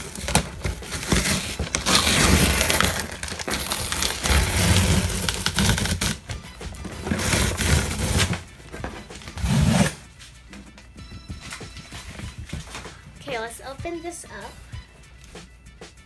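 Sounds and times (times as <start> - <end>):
packing tape ripping off box: 0.0 - 8.5, 9.2 - 10.0
background music: 0.0 - 16.0.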